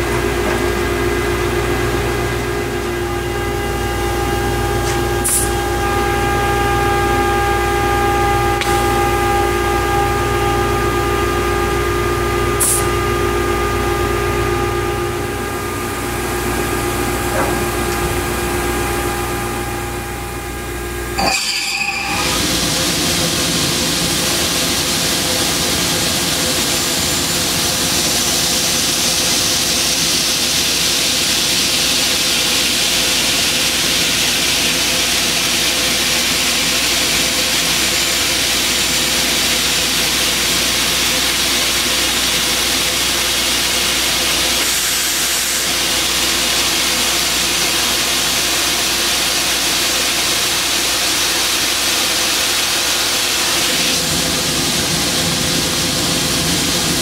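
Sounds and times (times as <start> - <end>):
saw motor hum and whine: 0.0 - 57.0.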